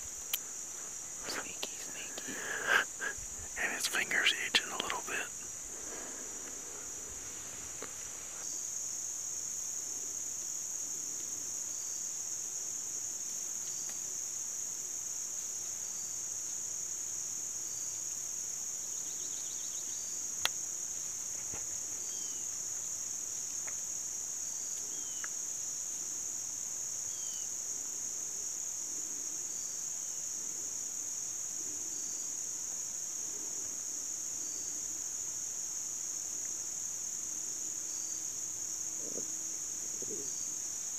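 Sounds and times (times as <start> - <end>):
crickets trilling: 0.0 - 40.9.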